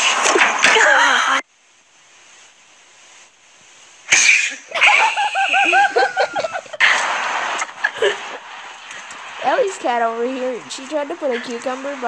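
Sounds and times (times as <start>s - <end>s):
faint hiss: 0.0s - 12.0s
high-pitched repeated cries: 4.1s - 6.2s
loud noisy burst: 4.1s - 9.6s.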